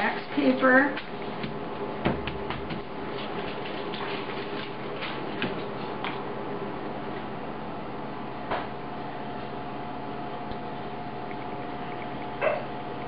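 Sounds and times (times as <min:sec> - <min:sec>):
paper patted and rustling: 0:00.9 - 0:06.2.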